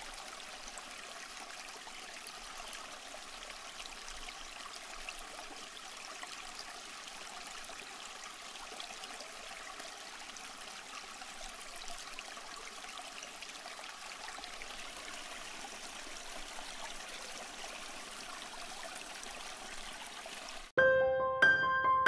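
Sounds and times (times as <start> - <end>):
running water rushing: 0.0 - 20.8
piano-like music: 20.8 - 22.0.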